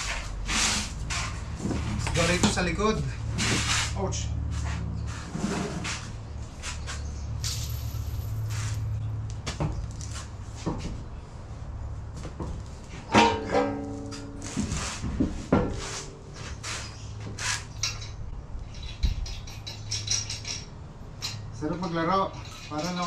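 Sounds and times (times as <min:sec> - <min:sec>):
loud metallic clang: 0:13.1 - 0:14.6
metal tools clinking: 0:17.7 - 0:23.0.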